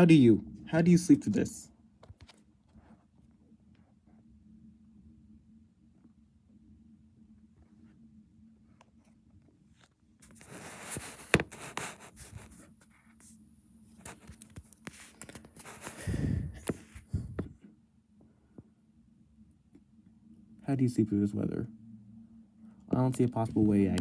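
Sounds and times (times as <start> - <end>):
rustling and scraping handling: 8.6 - 17.6.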